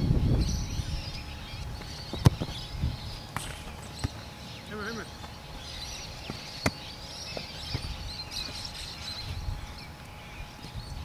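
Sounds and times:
wind rumble on microphone: 0:00.0 - 0:03.3, 0:07.6 - 0:11.0
birds chirping: 0:00.0 - 0:11.0.

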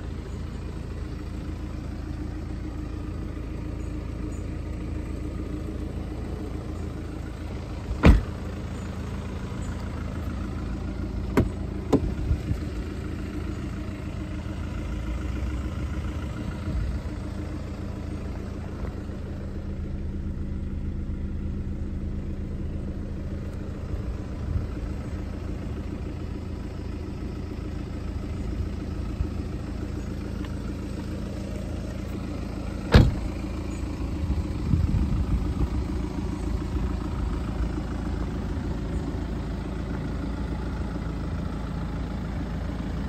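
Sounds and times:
diesel engine idling: 0:00.0 - 0:43.0
sharp thump: 0:08.0 - 0:08.4, 0:11.3 - 0:12.2, 0:32.9 - 0:33.3.

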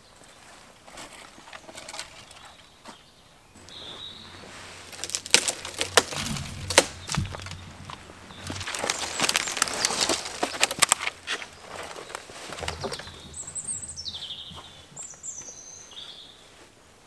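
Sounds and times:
dry wood cracking and snapping: 0:04.8 - 0:14.7.

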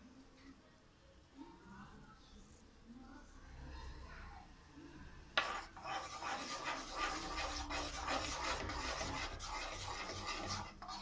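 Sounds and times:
spatula scraping a pan: 0:05.4 - 0:11.0.

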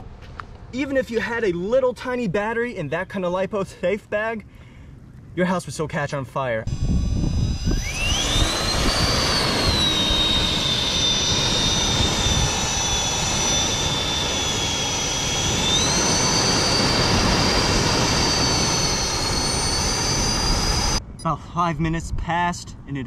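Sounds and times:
electric fan whining: 0:06.6 - 0:21.3
rush of air: 0:06.7 - 0:21.1.

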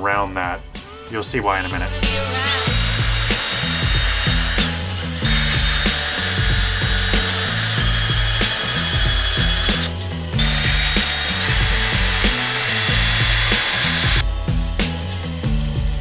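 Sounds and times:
background music: 0:00.0 - 0:16.0
drill whining while sanding wood: 0:02.1 - 0:14.2.

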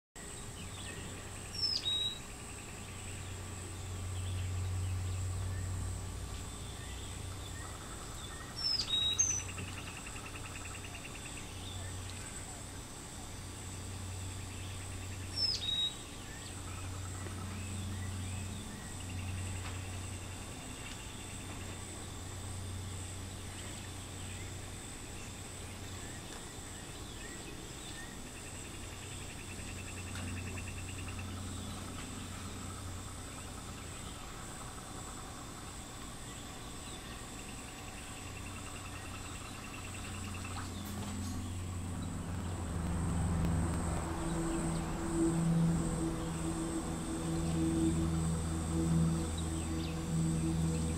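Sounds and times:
bird chirp: 0:00.2 - 0:12.5, 0:13.8 - 0:21.8, 0:36.2 - 0:50.9
insect drone with trills: 0:00.2 - 0:50.9
low rumble: 0:39.5 - 0:50.9.

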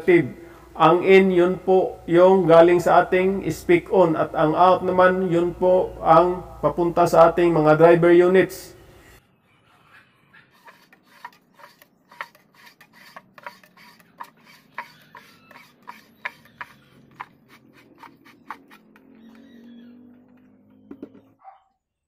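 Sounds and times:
threads clicking and rubbing: 0:10.6 - 0:20.9.

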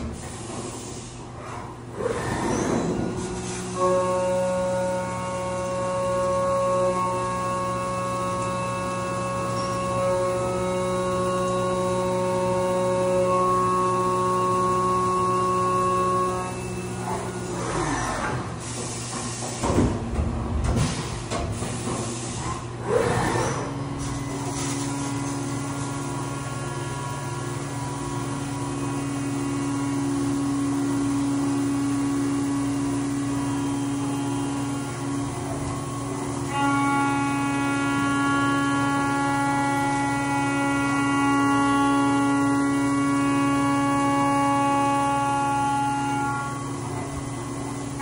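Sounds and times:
mill spindle whining: 0:00.0 - 0:19.3.

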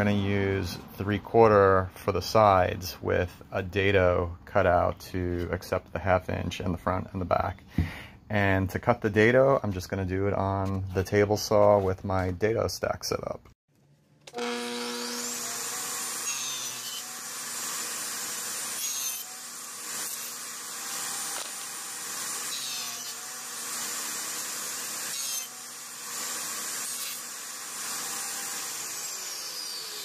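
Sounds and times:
table saw cutting wood: 0:14.3 - 0:30.0.

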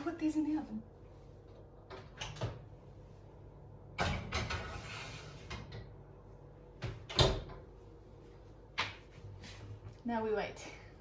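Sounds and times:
baking tray scraping on oven rack: 0:04.4 - 0:05.6.

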